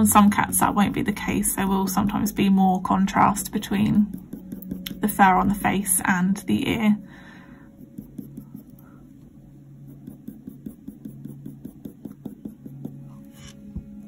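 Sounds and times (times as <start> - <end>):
coloured pencil scratching on paper: 3.3 - 5.8, 7.8 - 8.8, 9.8 - 13.6.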